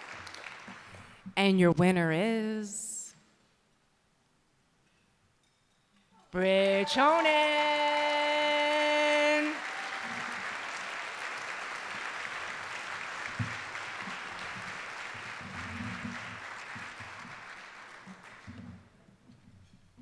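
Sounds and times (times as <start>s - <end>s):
audience applauding: 0.0s - 1.2s, 6.4s - 18.8s.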